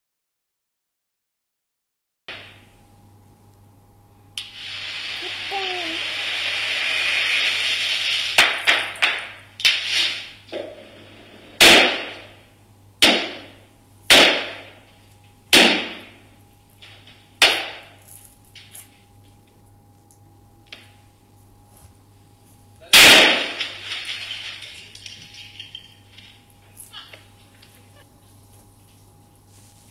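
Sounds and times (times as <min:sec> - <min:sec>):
spark fountain hissing: 0:04.4 - 0:12.3
firecracker bangs echoing: 0:04.4 - 0:14.9, 0:15.5 - 0:18.0, 0:22.9 - 0:26.4.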